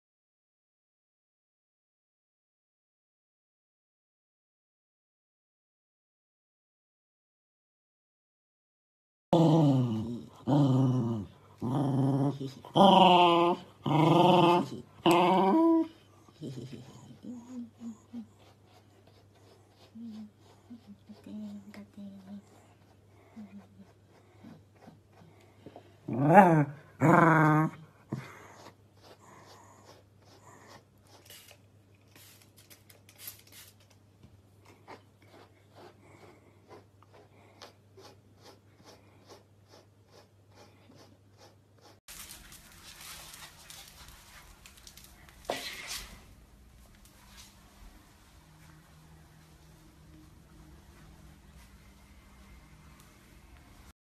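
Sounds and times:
dog growling: 9.4 - 18.0, 26.0 - 28.4
brush rasping through dog fur: 16.4 - 25.6, 28.1 - 33.9, 34.9 - 45.8.

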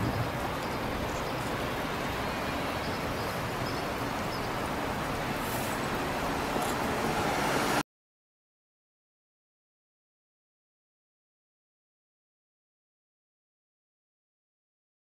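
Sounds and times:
city traffic hum: 0.0 - 7.8.

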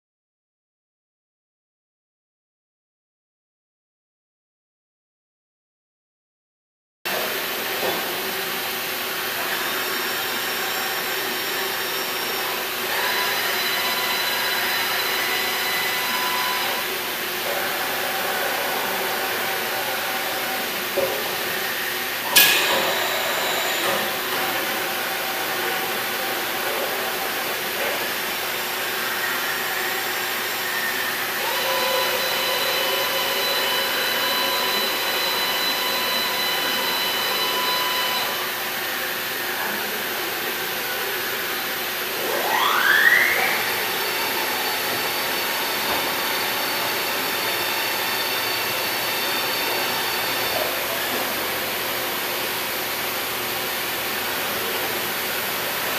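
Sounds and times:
boring mill mechanical hum: 7.1 - 55.9
machine whine: 7.1 - 55.9
short rising whine: 17.9 - 40.0.

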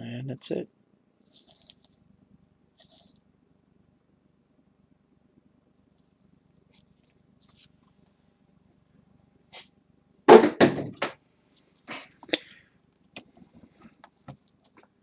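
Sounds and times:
knocks and thuds on metal briefcase: 10.3 - 11.1.

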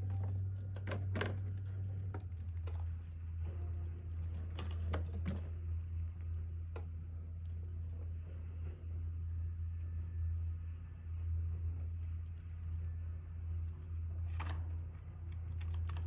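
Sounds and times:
rats scrabbling in wire cage: 0.0 - 8.0, 12.1 - 16.0
low hum: 0.0 - 16.0.

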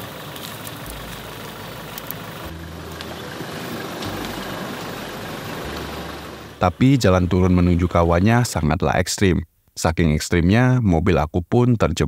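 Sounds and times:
car engine humming: 0.0 - 8.6.

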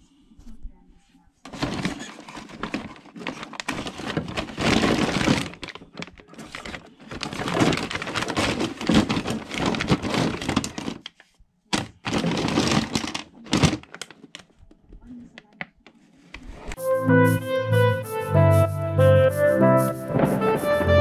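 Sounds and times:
plastic parts clattering in box: 1.5 - 14.6
plastic bags crinkling: 1.5 - 14.8.

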